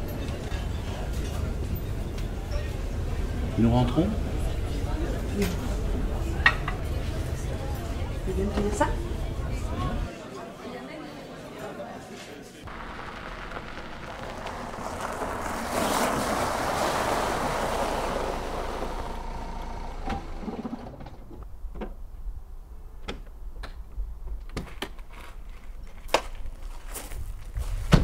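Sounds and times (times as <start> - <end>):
car driving over gravel: 12.7 - 21.5.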